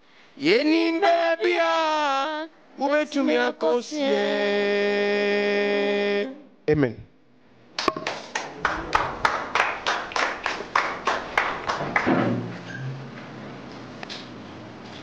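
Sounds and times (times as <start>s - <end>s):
hands clapping: 7.8s - 12.1s.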